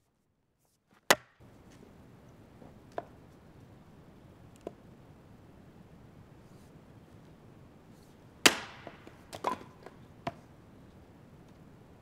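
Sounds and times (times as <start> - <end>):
axe chopping log: 1.1 - 1.4, 8.4 - 9.6.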